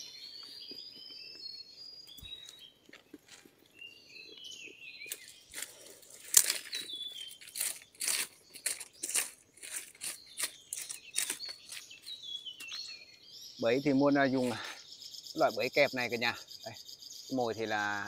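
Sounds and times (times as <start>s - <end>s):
small birds chirping: 0.0s - 18.0s
footsteps crunching dry leaves: 5.0s - 12.9s.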